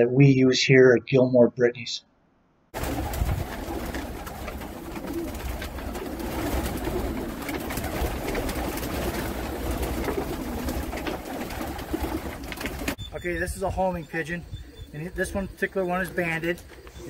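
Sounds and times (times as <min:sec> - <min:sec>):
wings flapping: 0:02.8 - 0:13.7, 0:14.7 - 0:17.0
pigeons cooing: 0:02.8 - 0:17.0.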